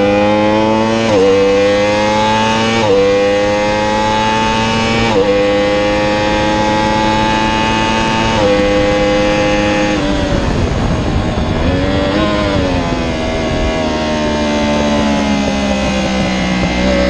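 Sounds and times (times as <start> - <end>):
motorcycle engine downshifting: 0.0 - 17.0
wind rushing: 3.4 - 17.0.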